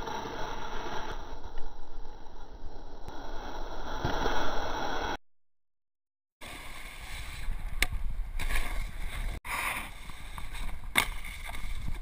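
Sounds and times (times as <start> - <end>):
snowboard sliding on snow: 0.0 - 1.4, 3.1 - 5.2, 6.4 - 7.7, 8.4 - 12.0
sharp board scrapes: 8.4 - 12.0.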